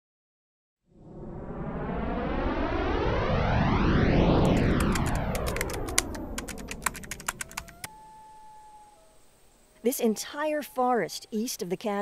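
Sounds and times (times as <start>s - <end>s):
synthesized whoosh: 0.8s - 7.4s.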